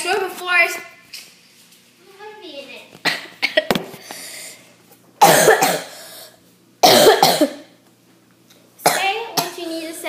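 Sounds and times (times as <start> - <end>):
girl coughing: 3.0 - 3.7, 5.2 - 7.8, 8.8 - 9.6.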